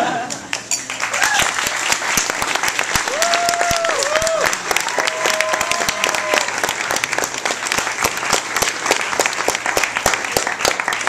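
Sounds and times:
audience applauding: 0.2 - 11.0.

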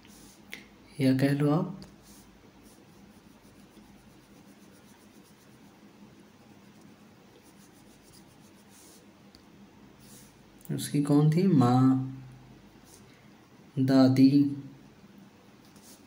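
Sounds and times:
stylus scratching on tablet: 1.9 - 9.1, 15.7 - 16.0.

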